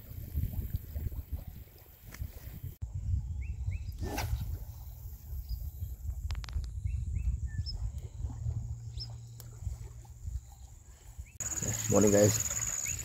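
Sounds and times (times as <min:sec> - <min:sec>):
wind rumbling on microphone: 0:00.0 - 0:13.0
bird chirps: 0:10.4 - 0:13.0.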